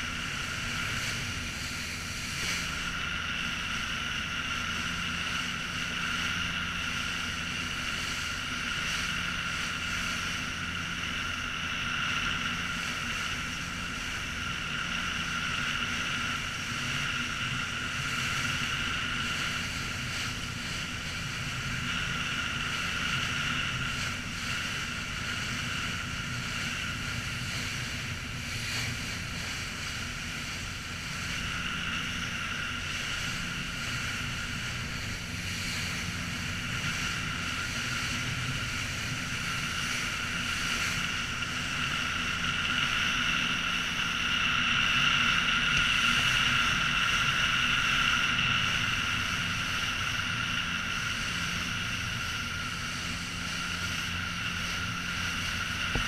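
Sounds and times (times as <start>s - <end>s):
motorboat engine droning: 0.0s - 56.0s
wind: 0.0s - 56.0s.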